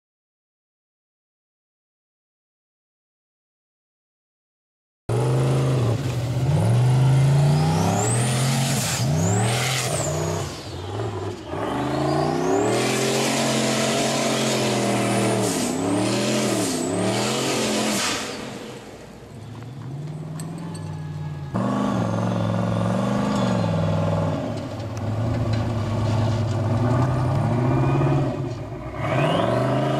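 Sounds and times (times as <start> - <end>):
buggy engine revving hard: 5.1 - 18.9, 21.4 - 29.9.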